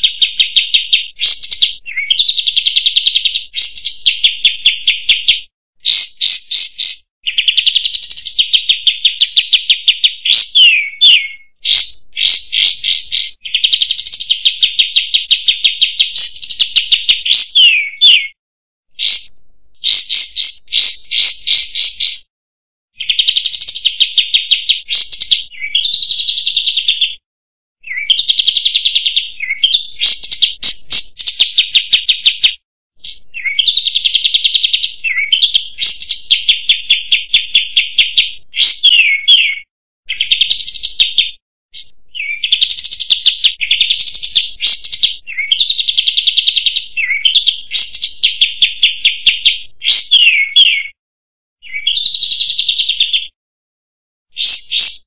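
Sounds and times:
bird singing chattering trills: 0:00.0 - 0:18.4, 0:19.0 - 0:22.3, 0:23.0 - 0:27.2, 0:27.8 - 0:51.0, 0:51.6 - 0:53.3.

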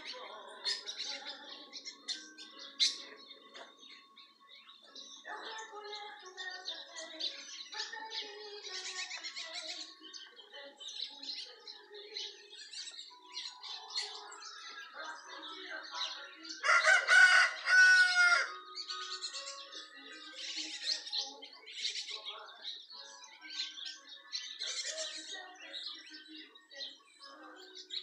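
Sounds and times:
small birds chirping and twittering: 0:00.0 - 0:28.0
rooster crowing: 0:16.6 - 0:18.6.

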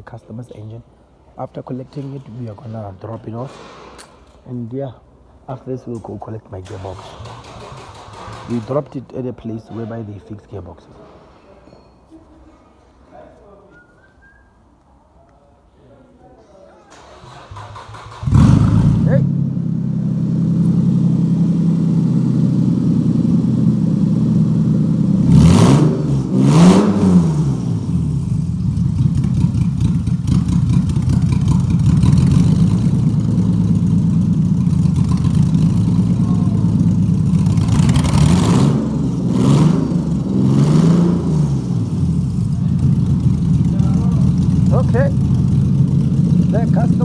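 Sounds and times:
vehicles rushing past: 0:17.1 - 0:47.0
car engine and road drone: 0:17.2 - 0:47.0.

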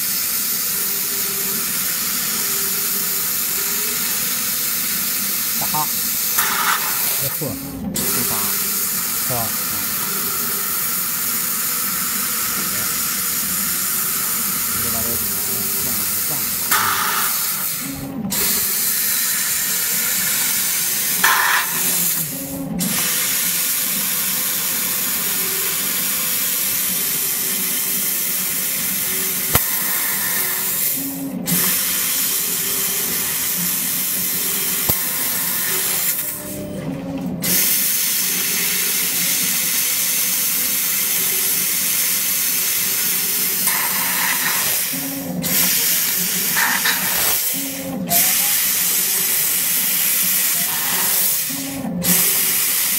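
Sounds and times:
gas jet hissing: 0:05.3 - 0:24.4, 0:25.3 - 0:36.3, 0:37.4 - 0:52.9.

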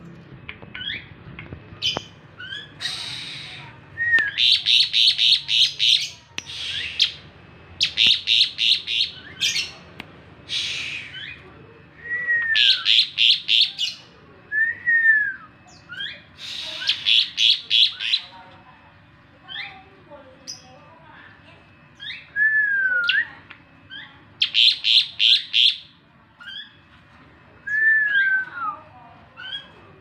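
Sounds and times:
rasping bird calls: 0:01.8 - 0:03.7, 0:04.3 - 0:09.7, 0:10.4 - 0:11.4, 0:15.9 - 0:18.3
starling chattering: 0:01.8 - 0:09.8, 0:10.4 - 0:11.5, 0:15.7 - 0:18.4.

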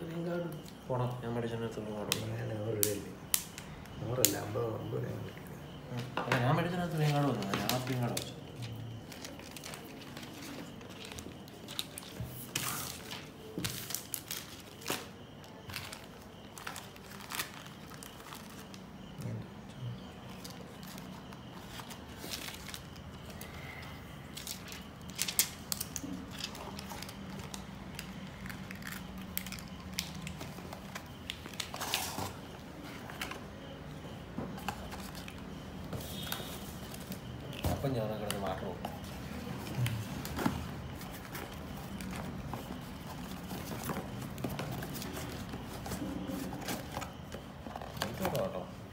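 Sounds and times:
plastic wrap crinkling: 0:06.6 - 0:18.8.

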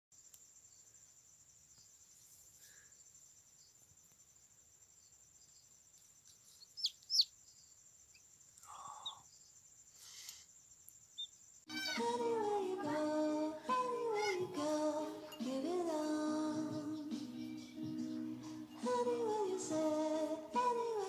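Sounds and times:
chick peeping: 0:06.6 - 0:07.3, 0:11.2 - 0:12.2.

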